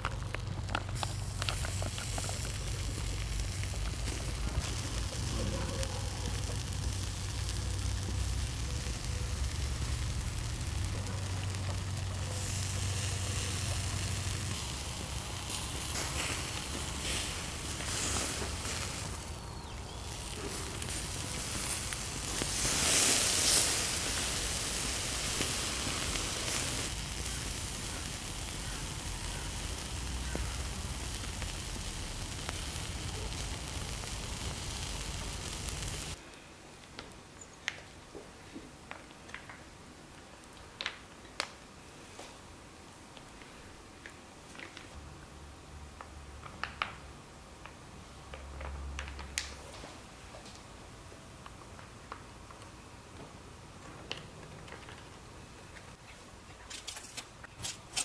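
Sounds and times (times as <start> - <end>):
meat sizzling on a grill: 0.0 - 36.2.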